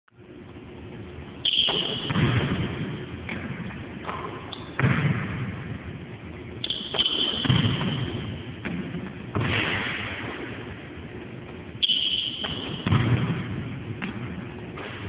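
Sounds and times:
basketball thuds with echo: 1.5s - 6.0s, 6.6s - 11.0s, 11.8s - 15.0s.

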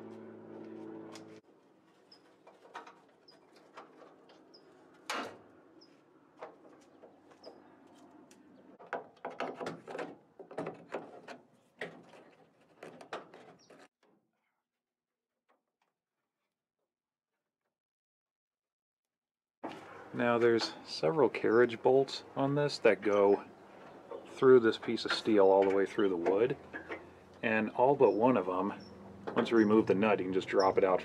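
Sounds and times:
propeller plane engine droning: 0.0s - 1.4s
small birds chirping: 4.4s - 4.8s, 5.7s - 6.0s, 6.8s - 8.8s, 26.6s - 31.0s.

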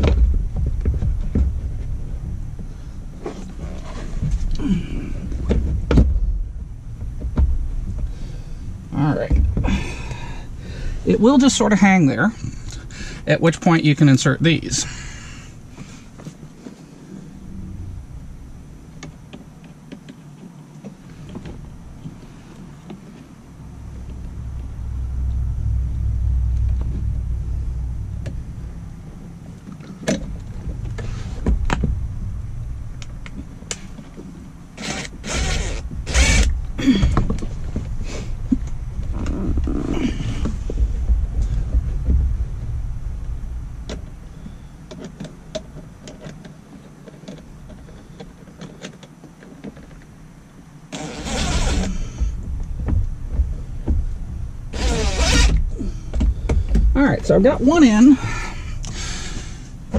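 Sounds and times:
cordless drill running: 34.8s - 36.5s, 50.9s - 52.2s, 54.7s - 55.6s.

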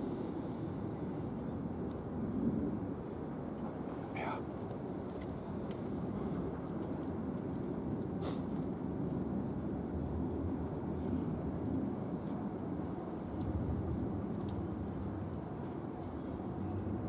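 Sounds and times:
low outdoor rumble: 0.0s - 17.0s
brief high hiss: 8.2s - 8.5s.

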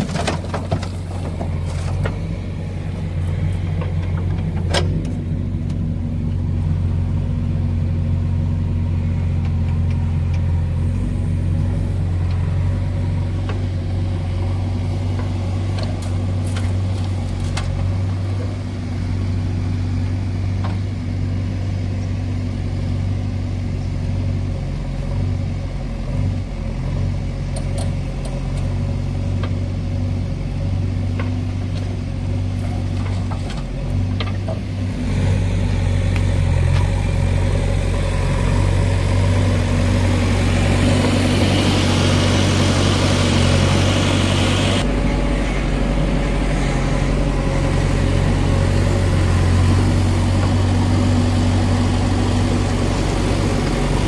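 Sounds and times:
diesel engines droning: 0.0s - 54.0s.

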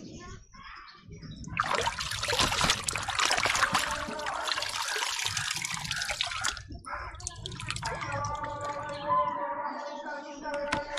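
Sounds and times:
water pouring and splashing: 1.4s - 8.9s
water dripping: 1.4s - 9.0s.

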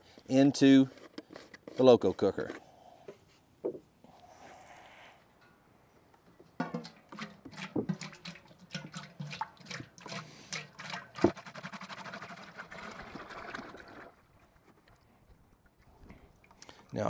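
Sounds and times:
oil pouring into pot: 6.7s - 15.8s.

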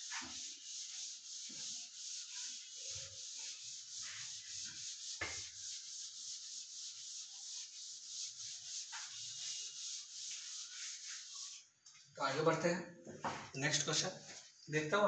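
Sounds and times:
duster rubbing a chalkboard: 0.0s - 12.0s
knock: 13.2s - 13.5s.

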